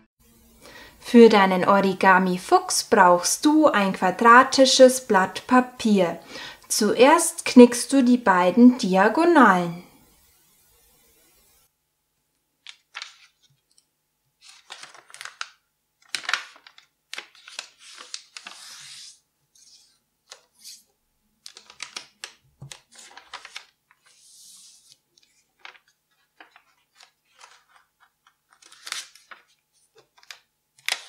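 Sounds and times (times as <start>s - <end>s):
paper rustling and crackling: 12.6s - 31.0s
fingers swiping paper crease: 17.4s - 20.9s.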